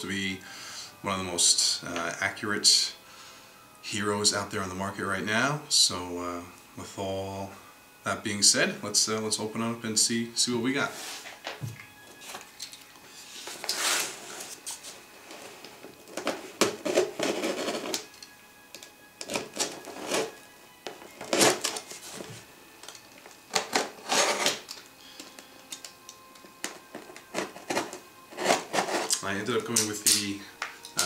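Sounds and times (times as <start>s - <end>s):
knife cutting packing tape: 19.2s - 20.4s, 21.1s - 22.0s, 23.4s - 24.8s, 27.1s - 29.2s.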